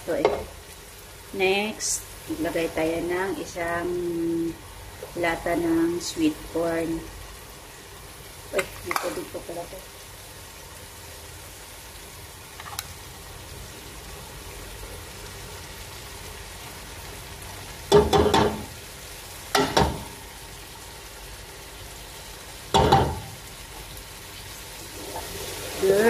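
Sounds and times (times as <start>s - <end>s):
sauce sizzling in a pot: 0.0s - 26.0s
tin can knocking on pot: 17.9s - 18.7s, 22.7s - 23.3s.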